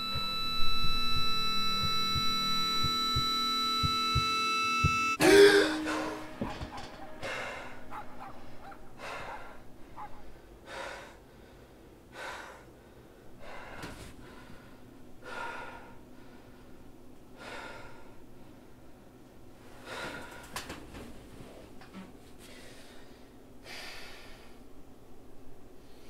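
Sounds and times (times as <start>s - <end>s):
man breathing heavily: 5.2s - 18.8s, 19.8s - 20.8s, 22.4s - 24.7s.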